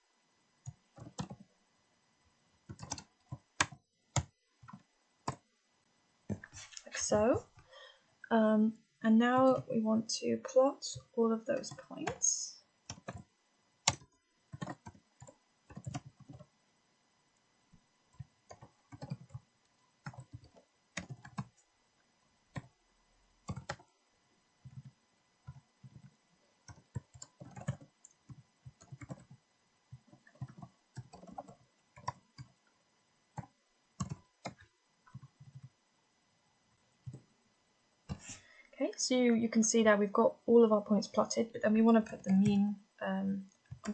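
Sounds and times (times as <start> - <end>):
typing on computer keyboard: 0.6 - 1.5, 2.7 - 5.4, 12.9 - 16.5, 18.2 - 21.6, 23.4 - 23.9, 24.7 - 29.4, 30.0 - 32.6, 33.4 - 35.7.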